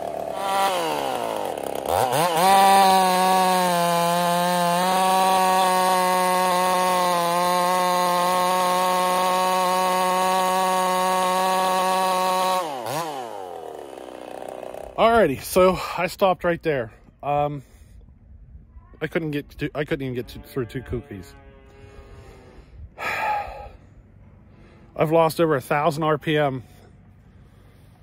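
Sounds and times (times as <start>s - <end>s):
chainsaw cutting log: 0.0s - 15.1s.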